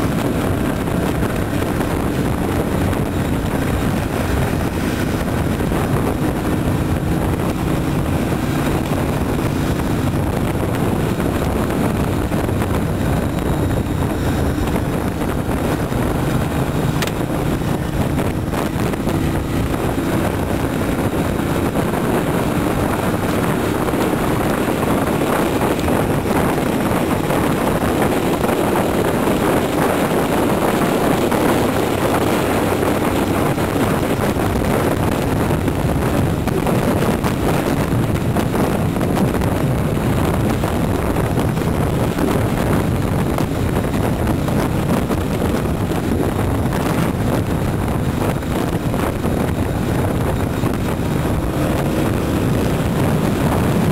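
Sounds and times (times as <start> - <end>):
motorcycle engine running: 0.0 - 53.9
wind rushing over microphone: 0.0 - 53.9.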